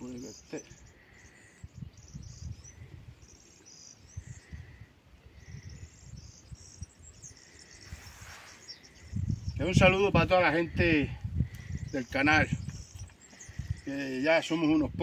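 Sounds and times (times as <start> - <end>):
crickets chirping: 0.0 - 9.7.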